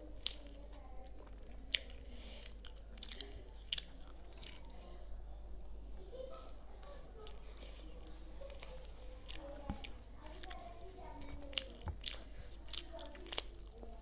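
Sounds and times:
person chewing food: 0:00.0 - 0:05.1, 0:07.2 - 0:14.0
wet mouth clicks and smacks: 0:01.7 - 0:04.6.

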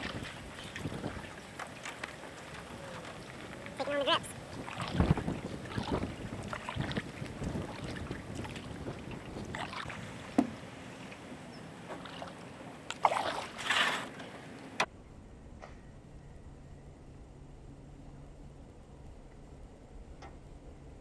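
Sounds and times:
paddle strokes splashing: 0:00.0 - 0:14.9
rushes of water: 0:00.0 - 0:14.9
sharp knock on canoe: 0:10.4 - 0:10.6.

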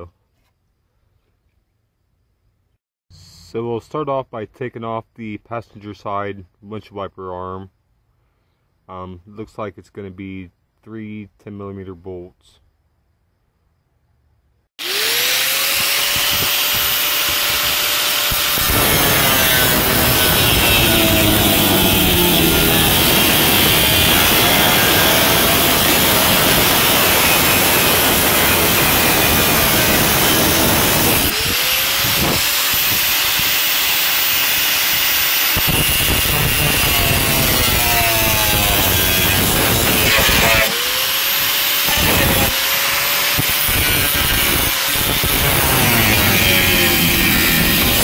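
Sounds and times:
power cutter grinding sheet metal: 0:14.8 - 0:48.0.

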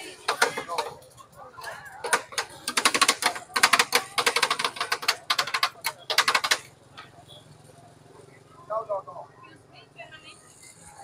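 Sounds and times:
rapid clacking: 0:02.0 - 0:06.7.

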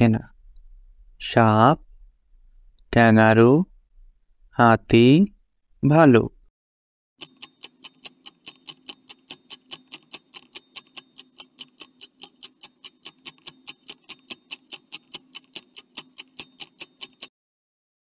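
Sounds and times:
stopwatch ticking: 0:07.2 - 0:17.3.

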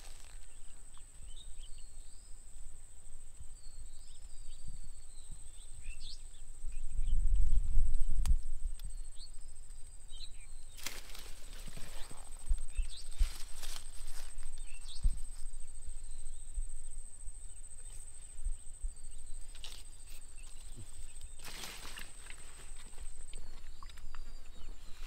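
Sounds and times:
steady high-pitched whine: 0:08.8 - 0:25.0.

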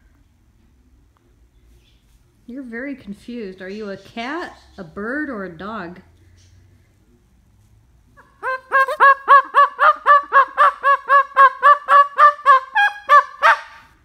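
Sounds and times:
cockatoo barking: 0:08.2 - 0:14.0.

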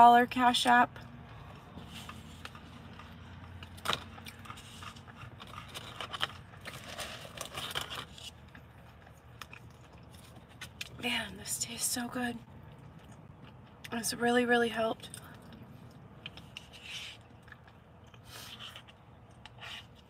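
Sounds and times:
chewing: 0:01.3 - 0:11.0, 0:15.0 - 0:20.0.

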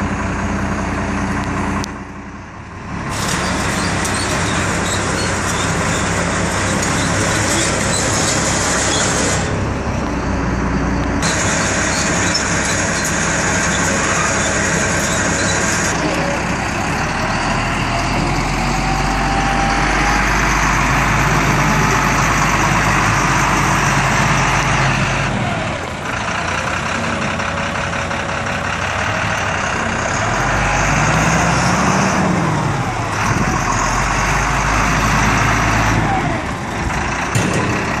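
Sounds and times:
truck engine idling: 0:00.0 - 0:38.0.

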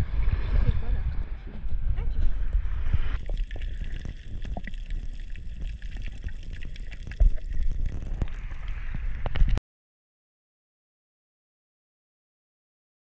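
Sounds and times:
underwater rumble of moving water: 0:00.0 - 0:09.6
small underwater clicks and pops: 0:03.2 - 0:09.6.

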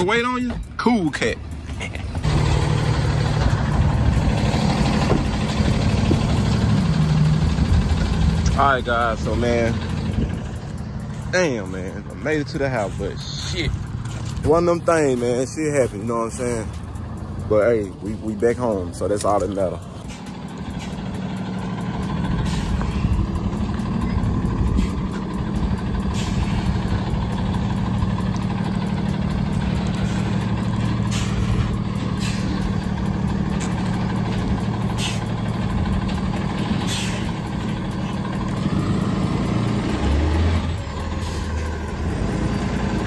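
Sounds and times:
truck engine idling: 0:00.0 - 0:43.0
brief hissing: 0:36.9 - 0:37.3.

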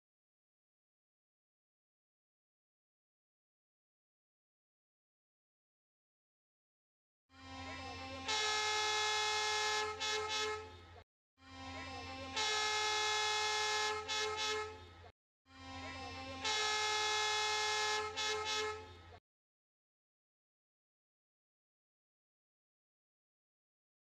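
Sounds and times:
train horn blasts and toots: 0:07.3 - 0:19.2.

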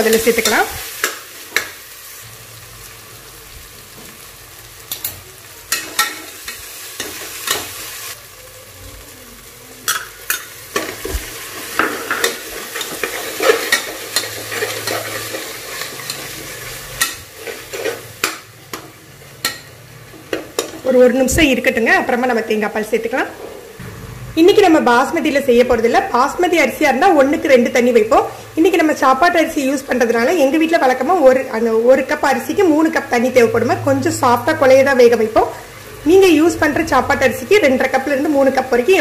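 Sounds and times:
food sizzling in oil: 0:00.0 - 0:39.0
metal spatula scraping pot: 0:09.9 - 0:18.4.

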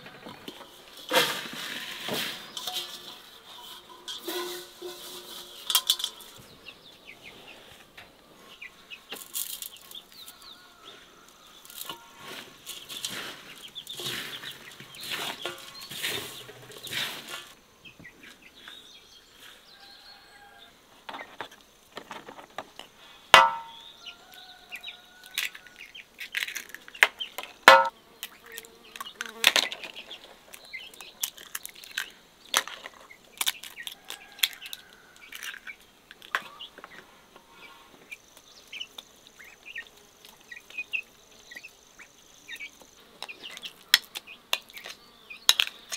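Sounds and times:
hands rubbing bulgur in steel basin: 0:01.0 - 0:06.4
eggs cracked on metal rim: 0:05.6 - 0:06.4.

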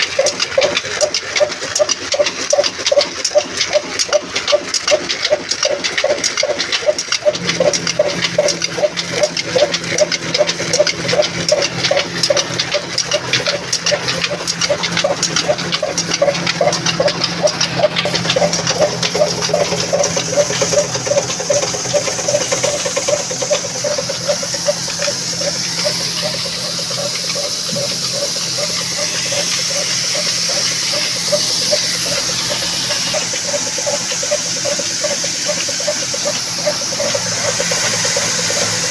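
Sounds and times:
diesel engine rhythmic beat: 0:00.0 - 0:38.9
machinery hum: 0:07.2 - 0:38.9
grain hissing over sieves: 0:14.5 - 0:38.9.

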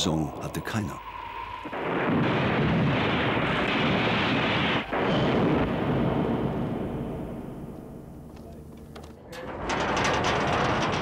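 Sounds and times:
loud rumbling blast: 0:00.5 - 0:08.2.

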